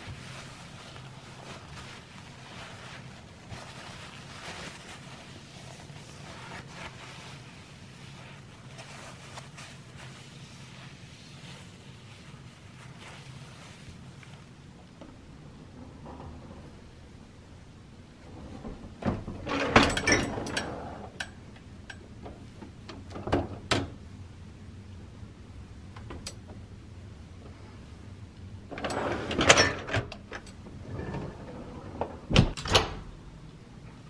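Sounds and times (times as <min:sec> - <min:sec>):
dishwasher racks rattling: 0:18.5 - 0:21.2, 0:28.7 - 0:30.4
dishwasher door shutting: 0:32.0 - 0:33.1.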